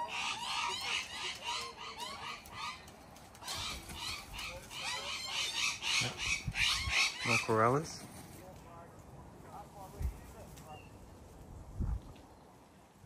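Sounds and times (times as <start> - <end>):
cockatoos calling: 0.0 - 8.0.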